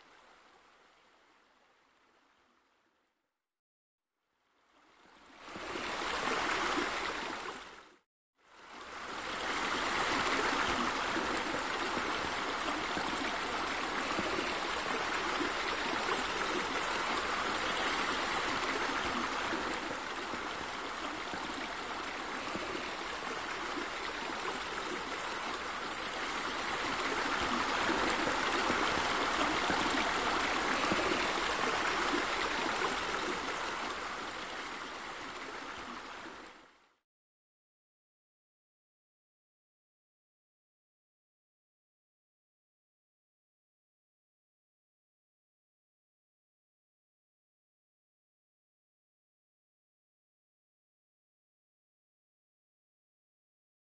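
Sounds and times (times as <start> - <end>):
water running and splashing: 9.4 - 36.3.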